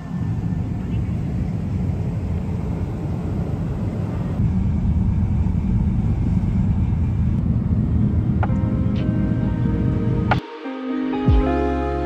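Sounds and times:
ship engines rumbling: 0.0s - 10.4s
wind: 0.0s - 10.7s
music notes: 8.4s - 12.0s.

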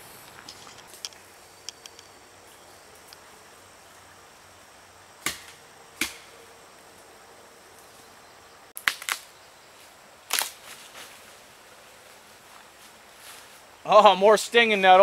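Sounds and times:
crackling and rustling: 0.0s - 3.3s, 8.8s - 13.7s
dry branches snapping: 8.8s - 9.3s, 10.3s - 11.1s.

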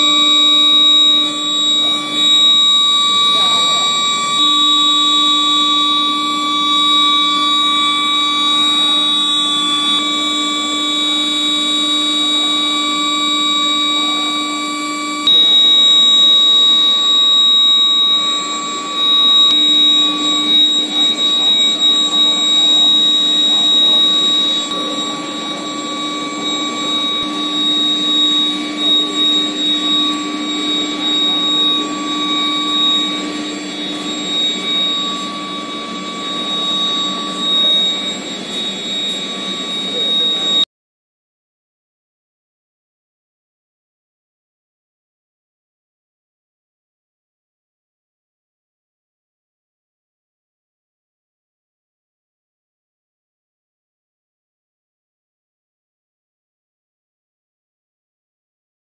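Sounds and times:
machine noise: 0.0s - 10.3s, 15.3s - 40.6s
steady electrical whine: 0.0s - 40.6s.

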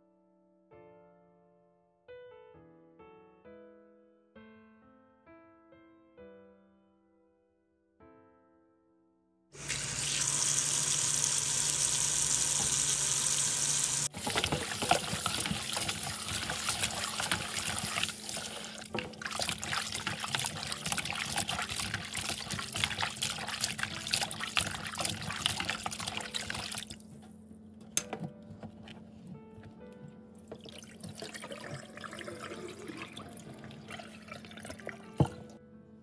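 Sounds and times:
tap water running into basin: 9.6s - 27.0s, 30.5s - 35.4s
hands sloshing and scrubbing in water: 14.1s - 27.1s.

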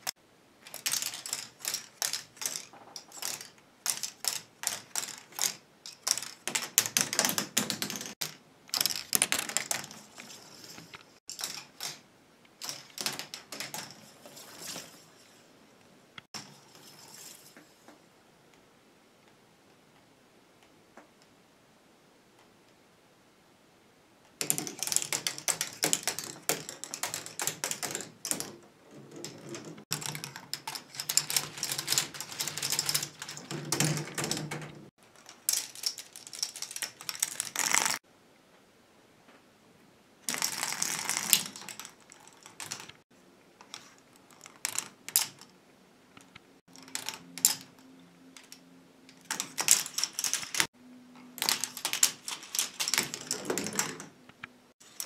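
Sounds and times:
plastic balls rattling through tracks: 0.0s - 15.4s, 24.4s - 38.0s, 40.3s - 43.0s, 43.6s - 45.5s, 46.7s - 47.8s, 48.4s - 50.7s, 51.4s - 54.2s.

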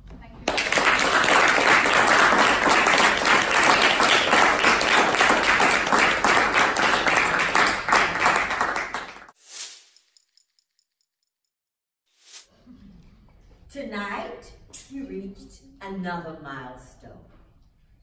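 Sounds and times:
audience applauding: 0.5s - 9.3s.

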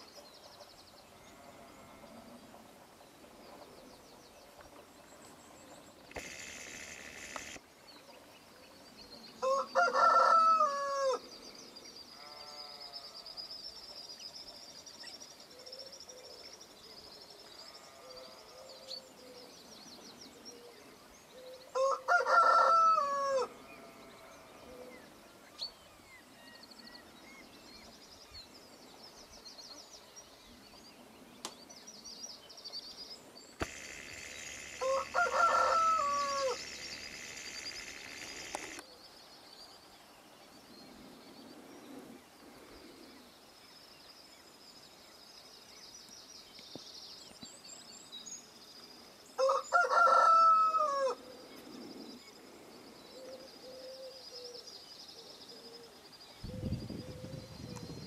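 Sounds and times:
songbird chirping: 0.0s - 58.0s
rooster crowing: 9.4s - 11.2s, 21.8s - 23.6s, 33.6s - 38.8s, 49.4s - 51.2s.

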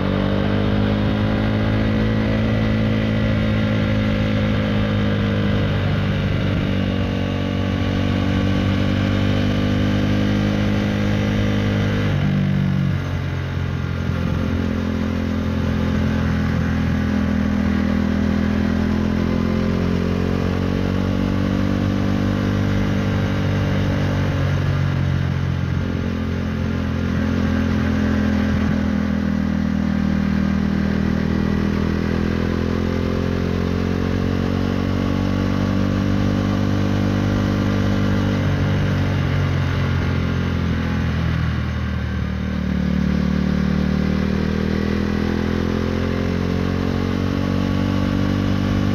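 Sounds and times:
single-cylinder motorcycle engine revving: 0.0s - 48.9s.

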